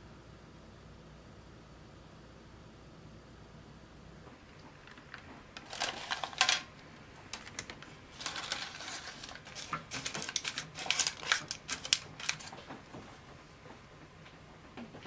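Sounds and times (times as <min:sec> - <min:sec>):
baking paper crinkling: 0:04.8 - 0:13.0.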